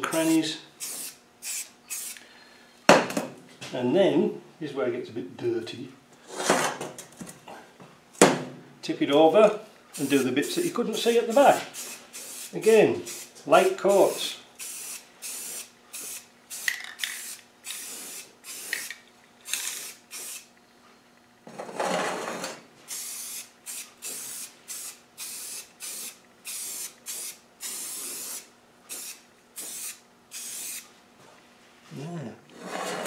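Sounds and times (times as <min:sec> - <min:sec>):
spray can hissing bursts: 0:00.1 - 0:02.2, 0:10.0 - 0:18.9, 0:19.5 - 0:20.5, 0:22.9 - 0:30.8.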